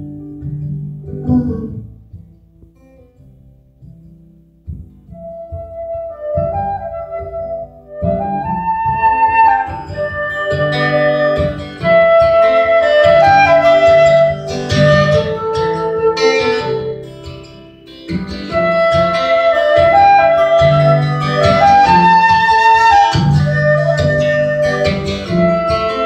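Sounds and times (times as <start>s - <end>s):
strummed acoustic guitar: 0.0s - 26.0s
flute melody: 5.1s - 26.0s.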